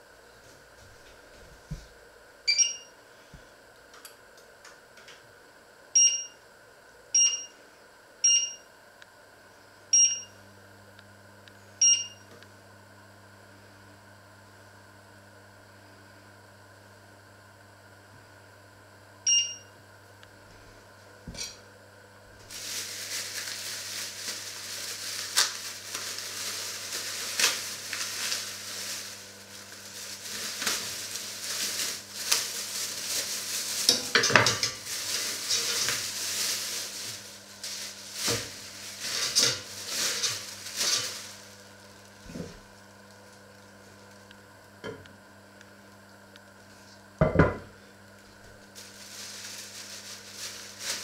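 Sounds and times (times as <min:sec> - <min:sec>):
short electronic beep: 0:02.5 - 0:02.9
plastic bag crinkling: 0:22.4 - 0:44.2, 0:48.4 - 0:51.0.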